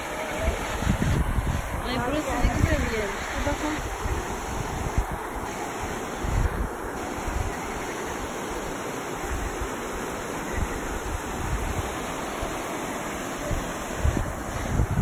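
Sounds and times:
wind buffeting microphone: 0.0 - 7.6, 10.5 - 12.8, 13.4 - 15.0
river rushing over rocks: 0.0 - 15.0.

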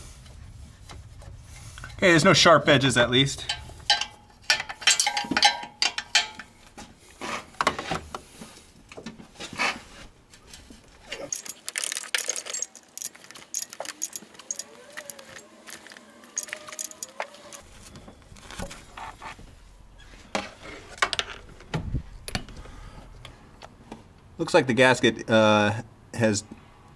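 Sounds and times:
wrench clinking on metal: 3.4 - 6.6, 11.1 - 17.6.

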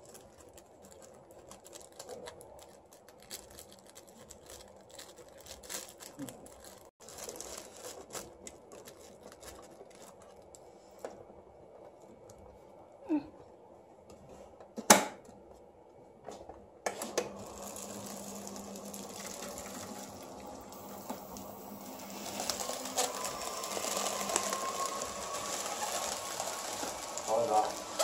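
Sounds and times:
machine blower humming: 17.0 - 28.0.

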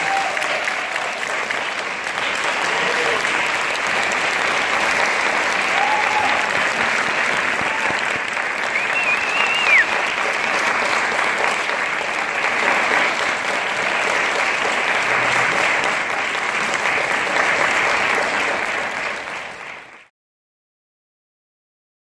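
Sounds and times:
audience applauding: 0.0 - 20.1
short high whistle: 8.7 - 10.0.

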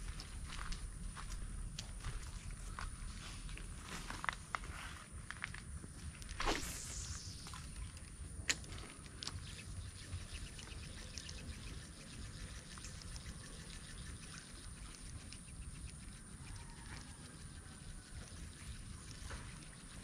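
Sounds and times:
insect drone: 0.0 - 20.0
faint ticks: 6.2 - 20.0.

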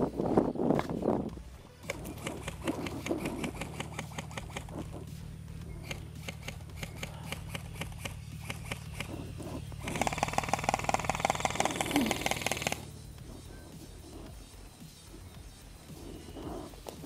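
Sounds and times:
steady low hum: 0.0 - 17.0
airsoft guns firing: 1.8 - 4.9, 5.8 - 9.2, 9.8 - 12.9.

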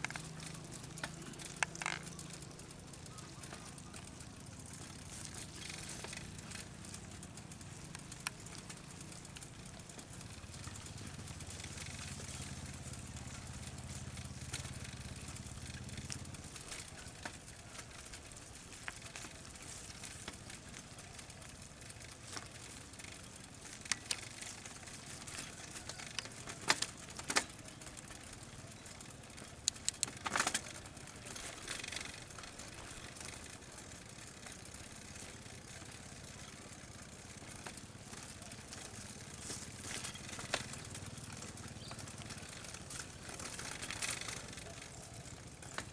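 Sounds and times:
steady outdoor hiss: 0.0 - 45.9
scattered clicks and taps: 29.6 - 30.6.

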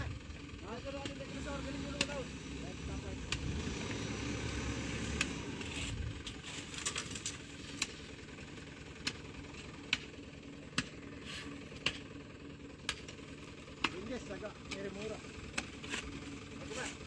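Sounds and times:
truck engine idling: 0.0 - 17.0
hoe chopping mud: 8.8 - 12.1, 12.8 - 17.0.

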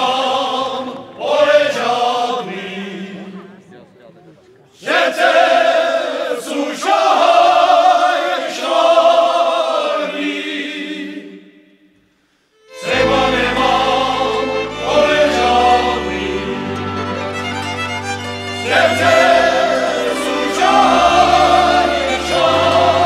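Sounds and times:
men singing folk song: 0.0 - 3.4, 12.8 - 23.0
folk string band with fiddle: 12.6 - 23.0.

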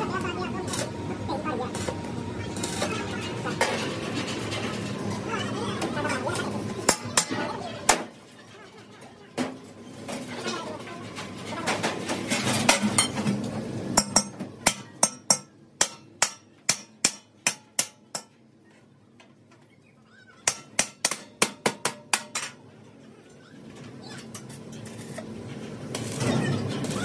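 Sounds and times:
hammer striking steel: 6.9 - 8.0, 14.0 - 18.4, 20.5 - 22.6.

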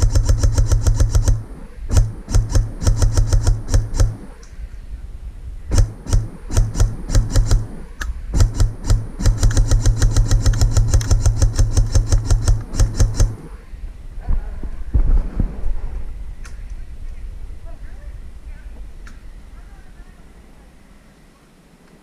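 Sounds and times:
airsoft rifle firing: 0.0 - 4.6, 5.7 - 13.7.

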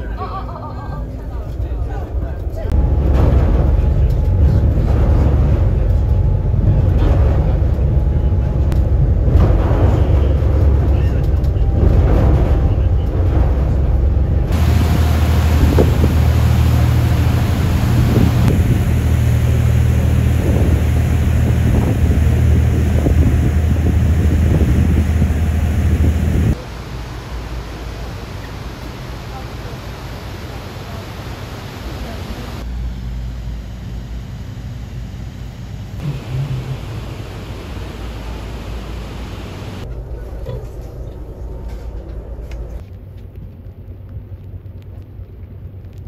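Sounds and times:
boat engines droning: 0.0 - 42.8
wind: 0.0 - 46.0
rushing boat wake: 11.8 - 32.7, 36.0 - 39.9
wind buffeting microphone: 14.4 - 26.6
waterfall hiss: 14.5 - 32.6, 36.0 - 39.8.

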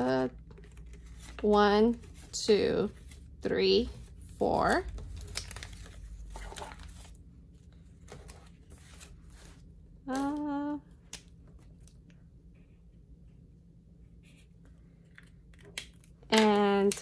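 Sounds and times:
person humming: 10.1 - 11.0.

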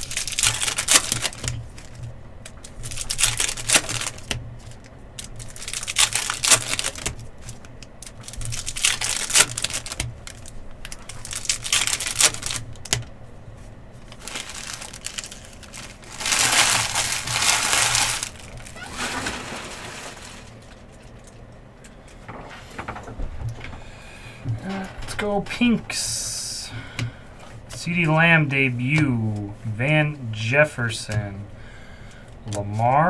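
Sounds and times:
foil wrappers crinkling and tearing: 0.0 - 13.0, 14.0 - 21.5.

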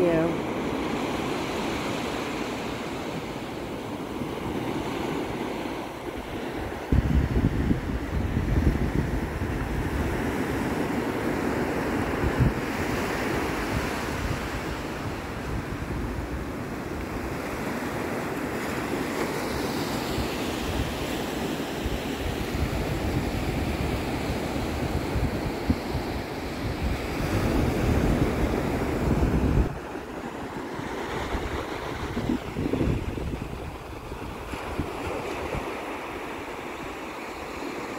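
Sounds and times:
ocean surf breaking on beach: 0.0 - 37.9
wind buffeting microphone: 6.0 - 17.6, 21.9 - 36.9.

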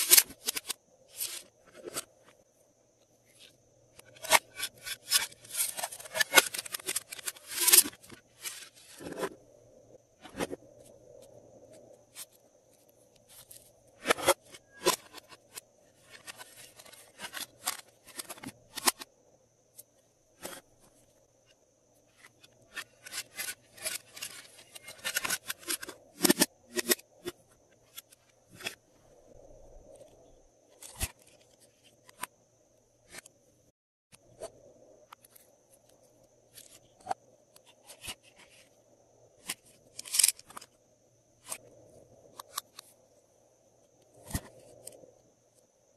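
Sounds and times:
crinkly rustling scrapes: 22.1 - 26.0.

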